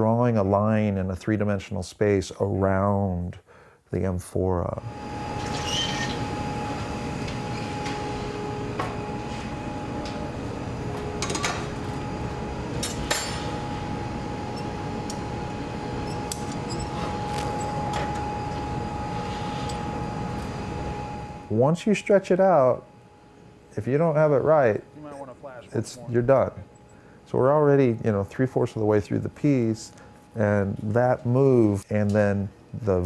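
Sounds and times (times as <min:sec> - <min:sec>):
faint steady hum: 0:00.0 - 0:33.0
gas furnace and blowers roaring: 0:04.0 - 0:33.0
tools clinking: 0:12.8 - 0:13.5, 0:16.0 - 0:17.8.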